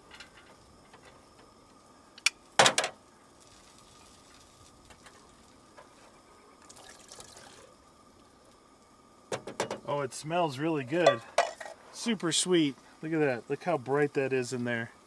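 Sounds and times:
loud clunk on metal: 2.6s - 3.0s, 9.3s - 9.9s.

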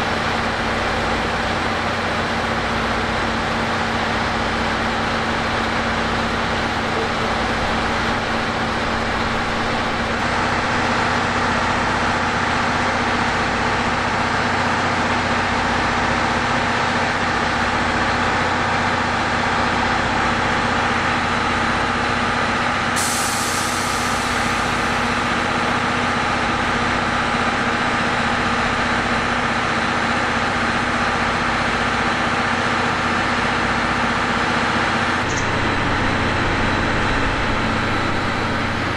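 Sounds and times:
train mechanical hum and rumble: 0.0s - 38.9s
hiss of released air: 23.0s - 25.2s.

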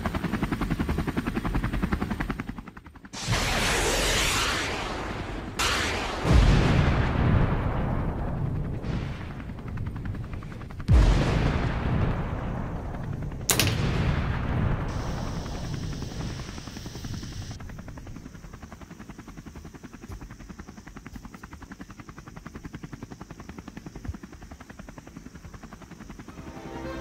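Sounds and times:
explosion rumble: 3.2s - 9.8s, 10.9s - 16.4s.

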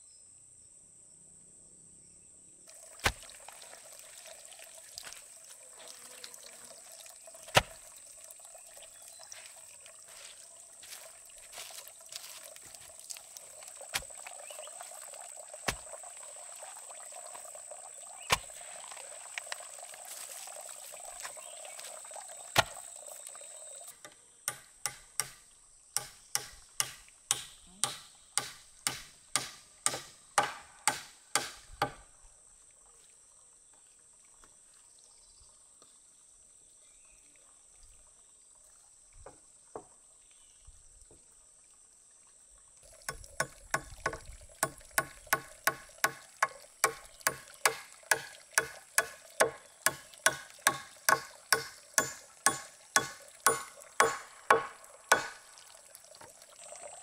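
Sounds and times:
running water: 2.7s - 57.0s
hammer striking nails into log: 7.6s - 7.8s, 24.5s - 25.4s, 26.0s - 32.0s, 43.1s - 55.4s
knocks: 46.9s - 55.4s.

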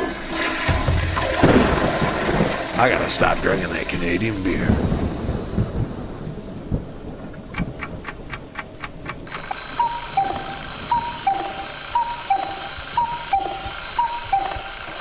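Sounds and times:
clock ticking: 7.5s - 15.0s
alarm clock beeping: 9.3s - 15.0s
faint high whine: 9.3s - 15.0s.

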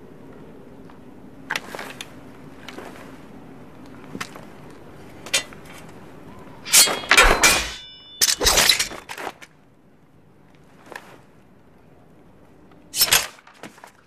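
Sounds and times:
metallic ring: 6.6s - 9.1s
sharp crack: 6.6s - 9.1s, 13.0s - 13.7s
clashing splintering impacts: 6.7s - 9.1s, 13.0s - 13.5s.

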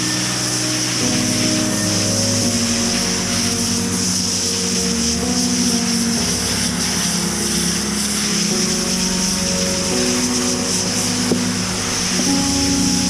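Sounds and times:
foam gun spraying hiss: 0.0s - 13.0s.

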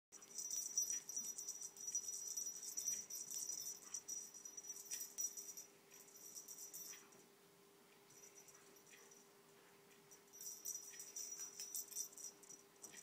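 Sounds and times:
small object jingling and rattling: 0.2s - 7.1s, 10.2s - 13.0s
faint low hum: 0.2s - 13.0s.

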